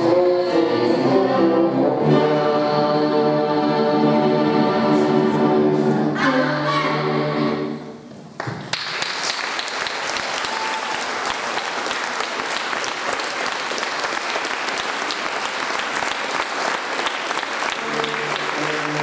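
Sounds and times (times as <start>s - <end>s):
person singing: 0.0s - 7.8s, 17.7s - 19.0s
audience applause: 8.4s - 19.0s.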